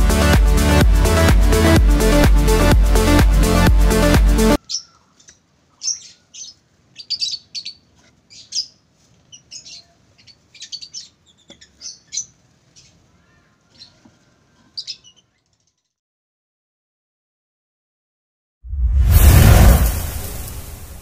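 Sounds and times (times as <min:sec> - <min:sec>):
lovebirds chirping: 0:04.6 - 0:15.9.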